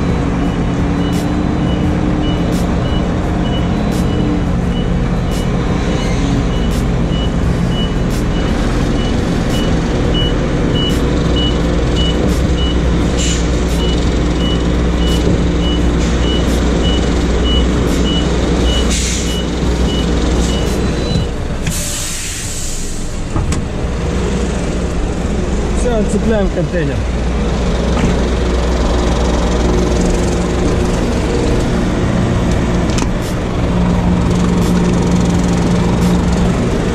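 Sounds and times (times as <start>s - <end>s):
diesel truck engine running: 0.0s - 36.9s
air brake hiss: 13.2s - 13.7s, 18.8s - 19.4s, 21.7s - 23.2s
reversing beeper: 13.7s - 22.9s
air hisses: 21.7s - 23.1s.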